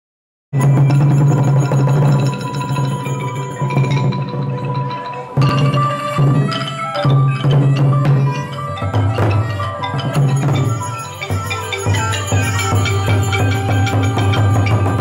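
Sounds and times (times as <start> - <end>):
large barrel drums beaten: 0.6 - 4.4, 5.4 - 15.0
xylophones and gongs: 0.6 - 15.0.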